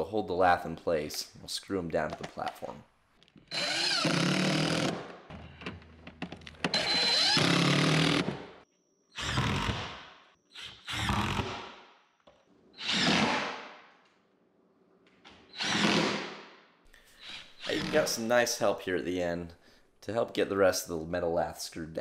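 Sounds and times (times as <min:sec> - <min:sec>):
cordless drill driving screws: 0:03.5 - 0:05.0, 0:06.6 - 0:08.3, 0:15.5 - 0:16.1.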